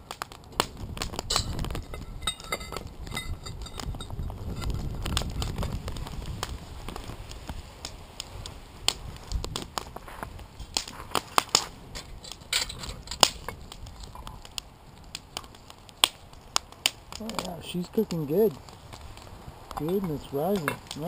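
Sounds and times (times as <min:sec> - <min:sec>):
wood fire crackling: 0:00.0 - 0:21.0
metal tongs clinking on cast iron: 0:19.8 - 0:21.0.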